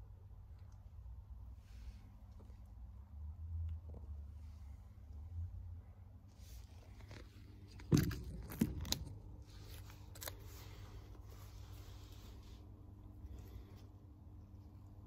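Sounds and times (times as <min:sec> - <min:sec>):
sharp knocks and rustles: 0:07.0 - 0:10.8.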